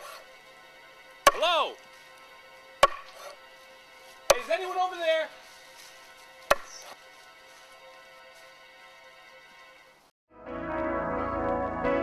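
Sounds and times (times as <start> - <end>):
heavy chopping blows: 0.0 - 0.3, 1.2 - 1.8, 2.8 - 3.4, 4.2 - 4.7, 6.5 - 7.0
faint steady drone: 0.0 - 4.4.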